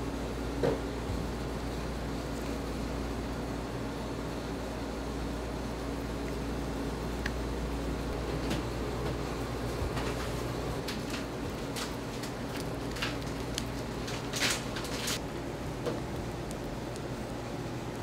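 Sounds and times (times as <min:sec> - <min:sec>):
low hum of kitchen equipment: 0:00.0 - 0:18.0.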